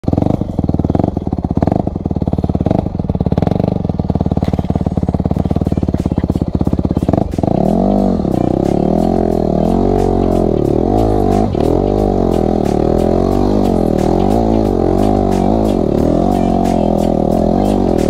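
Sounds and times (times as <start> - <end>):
dirt bike engine idling: 0.0 - 18.0
music: 4.4 - 18.0.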